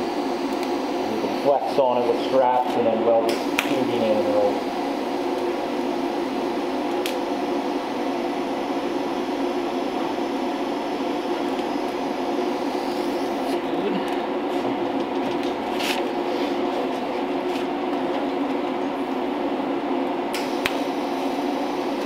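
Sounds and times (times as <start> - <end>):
welding arc crackling: 0.0 - 13.6
steady droning hum: 0.0 - 22.0.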